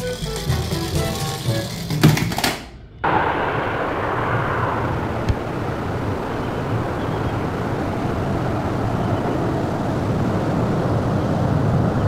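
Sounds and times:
toy rolling on plastic track: 0.0s - 2.6s.

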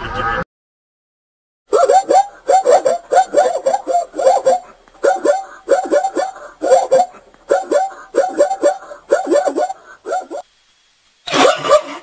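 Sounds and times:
zebra barking bray: 1.7s - 10.4s.

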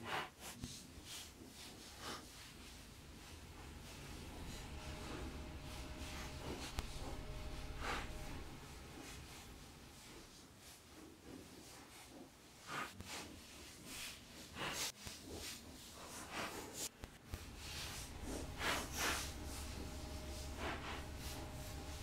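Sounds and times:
low hum: 2.4s - 10.5s, 17.2s - 22.0s.

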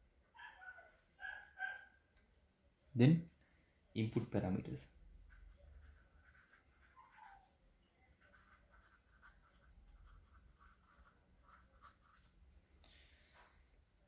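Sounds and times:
marker pen writing on paper: 5.2s - 7.5s, 8.2s - 12.4s.

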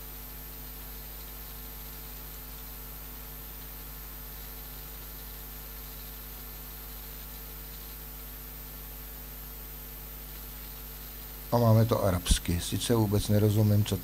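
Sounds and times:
electrical hum: 0.0s - 14.0s
background hiss: 10.3s - 14.0s.

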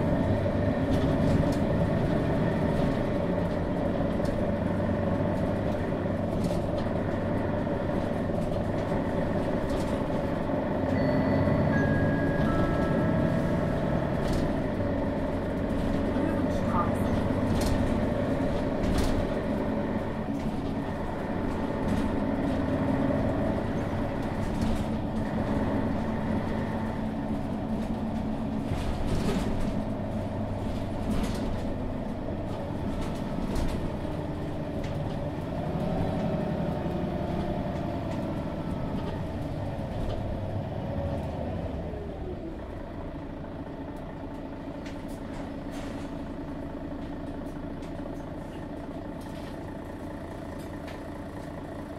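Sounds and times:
bus diesel engine running: 0.0s - 51.9s
rattles and clicks: 0.2s - 11.0s, 12.3s - 40.3s.

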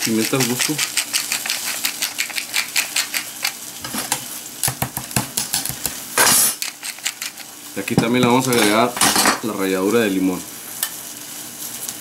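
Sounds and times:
pepper mill grinding: 0.0s - 3.9s, 6.2s - 7.6s.

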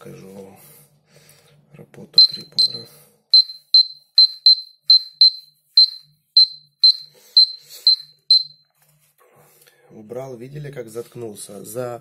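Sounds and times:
high-pitched alarm beeps: 2.2s - 8.7s.

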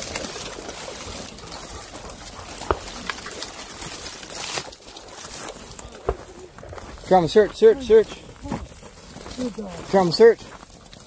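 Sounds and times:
twigs snapping: 0.0s - 7.0s
footsteps on gravel: 0.0s - 11.0s.

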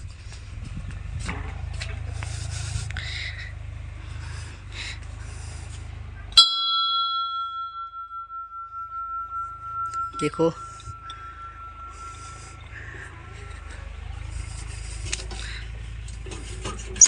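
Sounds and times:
small temple bell ringing: 6.4s - 14.2s
low rumble: 7.3s - 16.2s.

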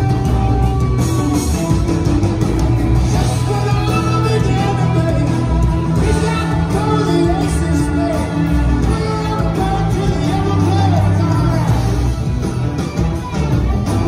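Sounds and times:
live rock band playing: 0.0s - 14.0s
man singing lead: 3.0s - 12.4s.

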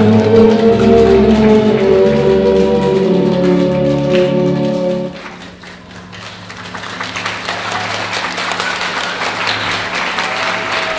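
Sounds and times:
ballet music held chord: 0.0s - 5.4s
audience applause: 0.0s - 10.9s.

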